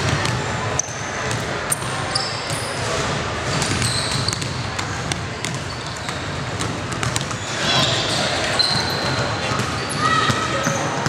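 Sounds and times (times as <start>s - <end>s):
murmur of players: 0.0s - 11.0s
sneakers squeaking: 0.0s - 11.0s
basketballs bouncing on wood floor: 2.4s - 8.0s, 8.6s - 11.0s.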